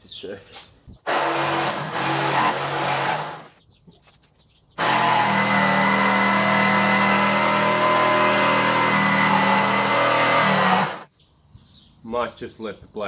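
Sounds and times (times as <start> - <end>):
jigsaw cutting timber: 1.1 - 3.5, 4.8 - 11.1.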